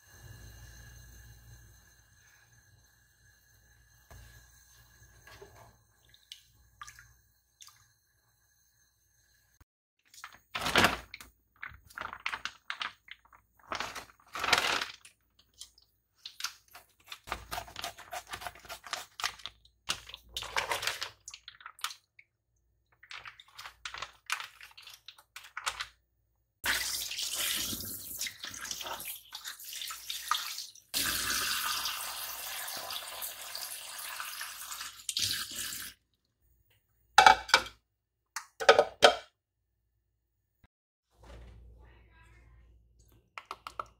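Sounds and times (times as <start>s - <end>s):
plastic packaging crinkling: 10.2s - 15.2s, 23.0s - 25.9s.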